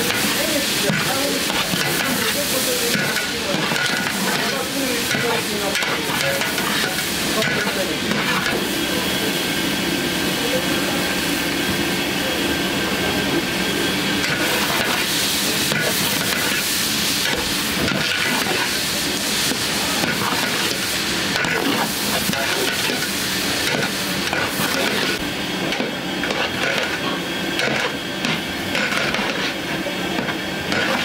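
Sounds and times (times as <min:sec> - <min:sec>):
meat sizzling in pot: 0:00.0 - 0:08.8, 0:14.0 - 0:31.0
metal spatula scraping: 0:28.7 - 0:29.6, 0:30.7 - 0:31.0.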